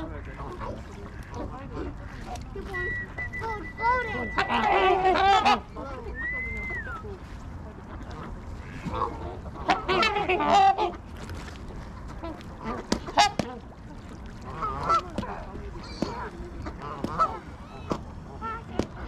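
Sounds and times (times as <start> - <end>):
geese honking: 2.7 - 6.0, 8.7 - 11.0.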